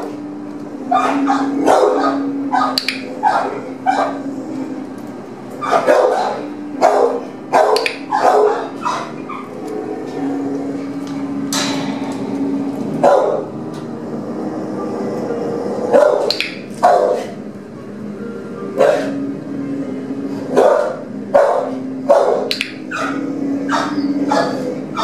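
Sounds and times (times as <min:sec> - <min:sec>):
dogs barking: 0:00.0 - 0:04.8, 0:05.5 - 0:11.4, 0:12.8 - 0:13.7, 0:15.4 - 0:17.5, 0:18.7 - 0:19.4, 0:20.4 - 0:25.0
steady low hum: 0:00.0 - 0:25.0.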